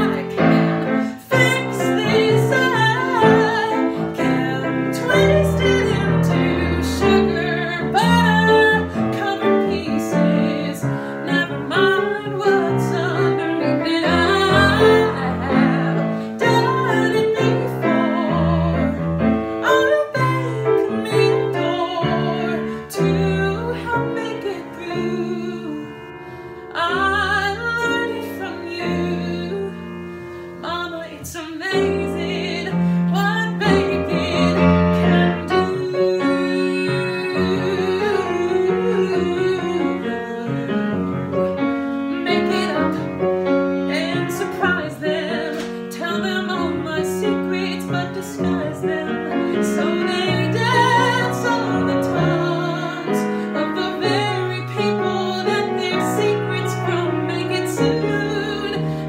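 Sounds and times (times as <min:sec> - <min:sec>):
person singing a ballad: 0:00.0 - 0:59.0
piano chords: 0:00.0 - 0:59.0.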